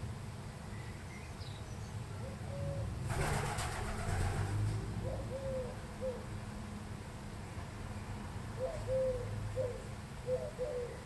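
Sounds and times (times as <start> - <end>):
dove cooing: 2.2 - 6.3, 8.6 - 11.0.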